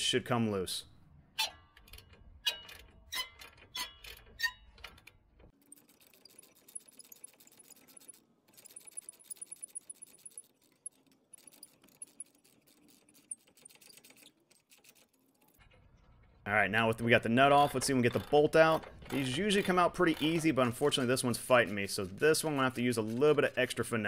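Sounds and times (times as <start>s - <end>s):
ratchet wrench clicking: 17.6s - 21.8s.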